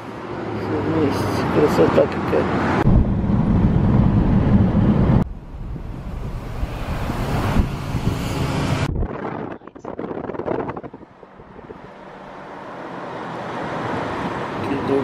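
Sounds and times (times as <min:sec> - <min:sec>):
car road noise rumble: 0:00.0 - 0:15.0
wind gusts on microphone: 0:02.5 - 0:12.6
wind rushing: 0:02.6 - 0:12.6.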